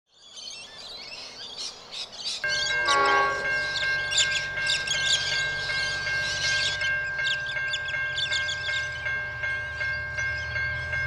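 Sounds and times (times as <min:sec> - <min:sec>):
birds chirping: 0:00.1 - 0:11.0
level crossing bell ringing: 0:02.5 - 0:11.0.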